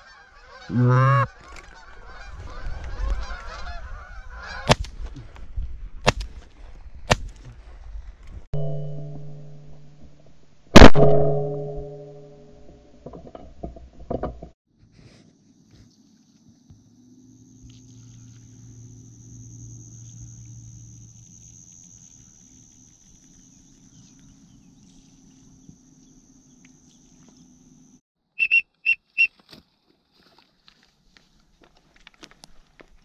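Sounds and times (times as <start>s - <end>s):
steady high-pitched whine: 16.2s - 28.0s.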